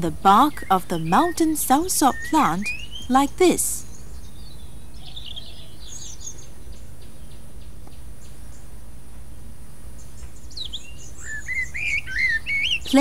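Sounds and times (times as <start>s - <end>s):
small birds chirping: 0.0s - 9.0s, 9.8s - 13.0s
steady low hum: 0.0s - 13.0s.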